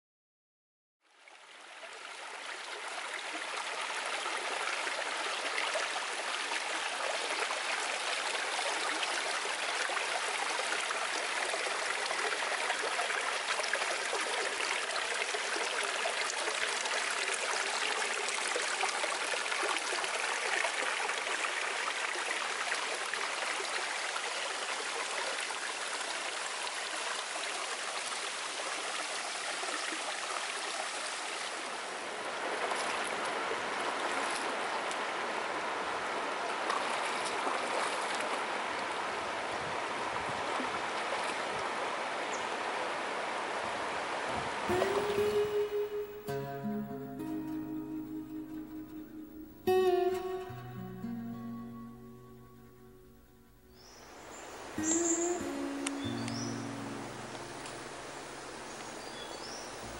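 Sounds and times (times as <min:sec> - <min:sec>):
river water flowing: 0:01.0 - 0:59.9.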